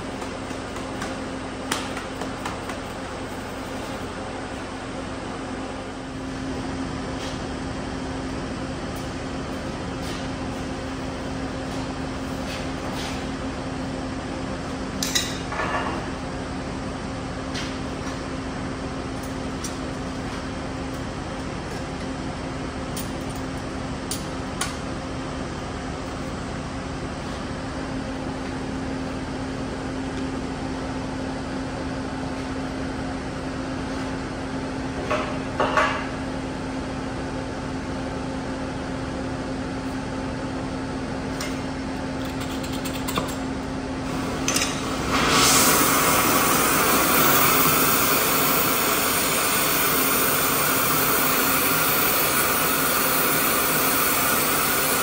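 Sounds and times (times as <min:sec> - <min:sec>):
welder engine humming: 0:44.0 - 0:55.0
welding arc crackling hiss: 0:44.1 - 0:55.0.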